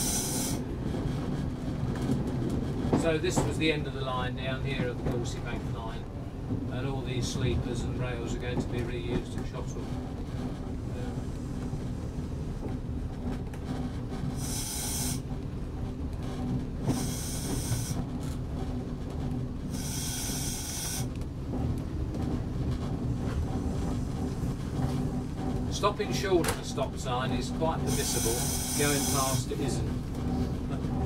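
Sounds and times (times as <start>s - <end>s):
diesel railcar rumble: 0.0s - 31.0s.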